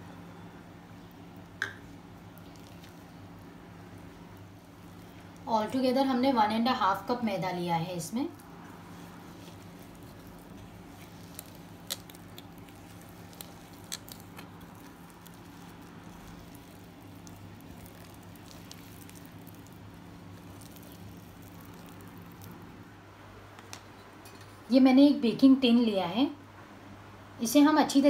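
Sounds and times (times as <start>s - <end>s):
steady low hum: 0.0s - 28.0s
dough squishing: 1.0s - 22.9s.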